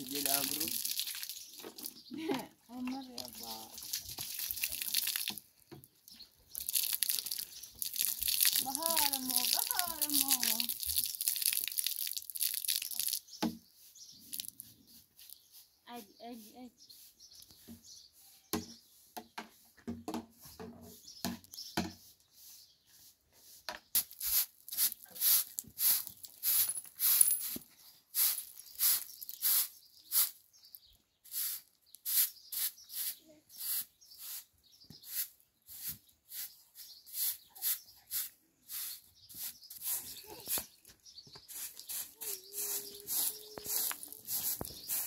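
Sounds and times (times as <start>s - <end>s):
broom sweeping concrete: 13.7s - 30.4s, 31.2s - 40.8s, 41.4s - 45.0s.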